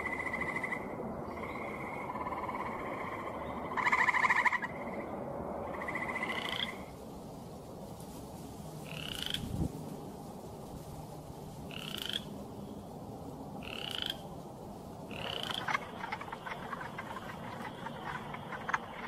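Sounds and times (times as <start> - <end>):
frogs trilling: 0.0 - 6.9, 8.8 - 9.5, 11.7 - 12.4, 13.6 - 14.4, 15.0 - 19.0
wood frogs clucking: 0.0 - 6.9, 8.8 - 9.6, 11.7 - 12.4, 13.6 - 14.4, 15.0 - 19.0.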